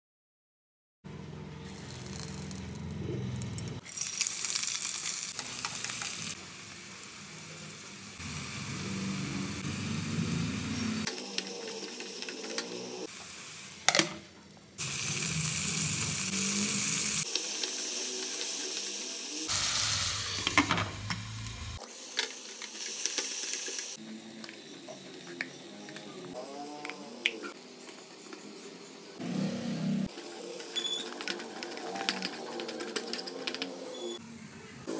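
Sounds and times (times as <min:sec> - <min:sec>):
vegetables sizzling in hot oil: 0:01.7 - 0:02.7, 0:03.8 - 0:14.2, 0:14.8 - 0:24.0.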